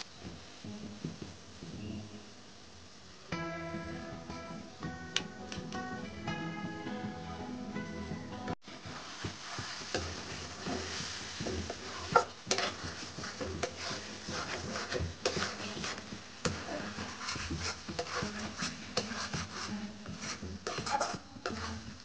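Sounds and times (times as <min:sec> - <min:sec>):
light sizzle: 0:00.0 - 0:07.8, 0:08.6 - 0:22.0
metal spatula scraping pan: 0:08.9 - 0:22.0.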